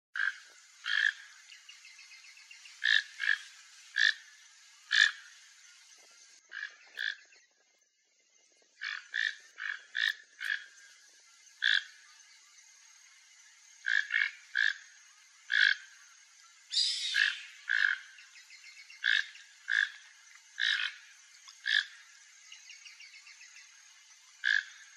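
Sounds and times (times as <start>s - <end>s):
toucan croaking calls: 0.2s - 5.5s, 6.4s - 7.4s, 8.8s - 10.9s, 11.6s - 12.0s, 13.8s - 16.0s, 16.7s - 23.1s, 24.3s - 24.9s.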